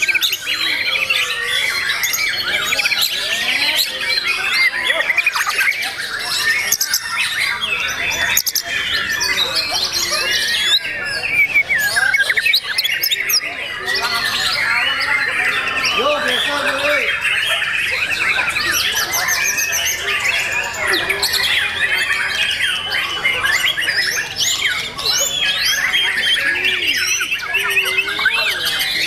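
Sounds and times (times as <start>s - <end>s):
birds singing: 0.0s - 29.0s.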